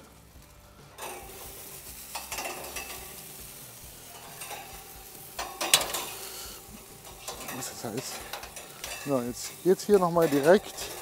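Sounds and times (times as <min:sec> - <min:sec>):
meat sizzling on a grill: 0:00.0 - 0:11.0
metal skewers clacking on grate: 0:00.9 - 0:11.0.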